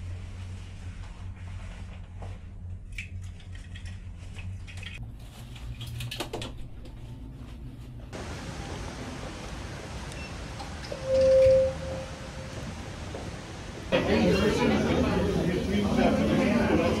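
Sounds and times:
steady low hum: 0:00.0 - 0:05.8.

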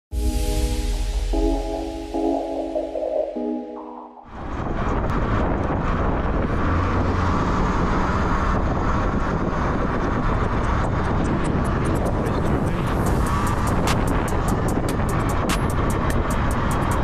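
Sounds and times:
low rumble: 0:00.2 - 0:15.4
wind buffeting microphone: 0:04.3 - 0:17.0.

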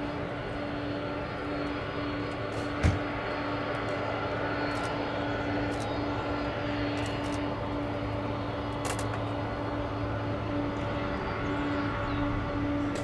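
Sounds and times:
jet engines hum with whine: 0:00.0 - 0:13.0.

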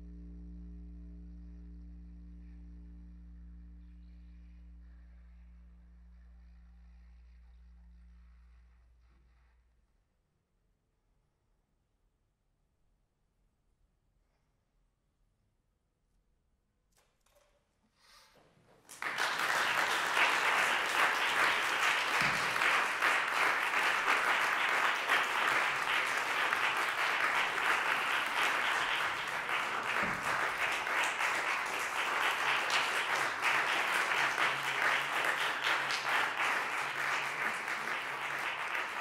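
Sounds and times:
audience applauding: 0:18.8 - 0:39.0.

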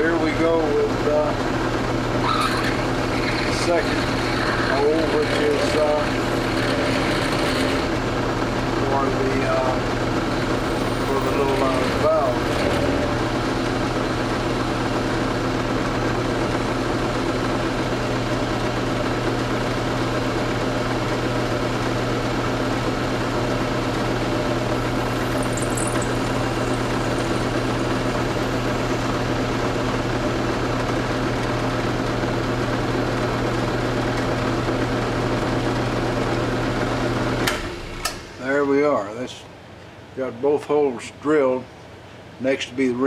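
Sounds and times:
drill press motor humming: 0:00.2 - 0:38.4
drill drilling into metal: 0:02.5 - 0:08.0, 0:25.0 - 0:28.9.

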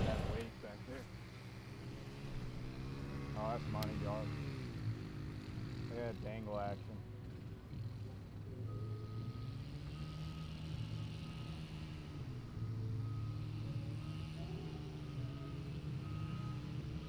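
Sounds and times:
low engine hum: 0:00.0 - 0:17.0
reversing alarm beeping: 0:08.6 - 0:12.0, 0:12.6 - 0:17.0.

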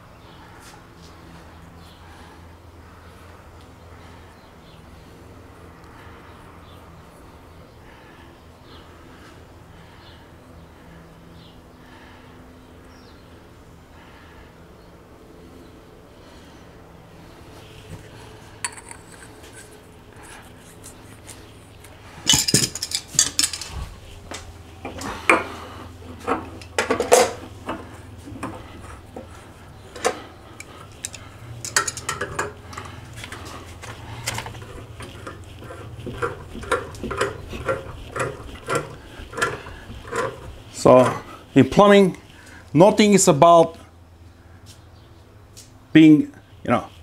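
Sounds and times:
metal pipe fittings clinking: 0:18.6 - 0:19.8, 0:22.2 - 0:23.8, 0:30.0 - 0:41.3.

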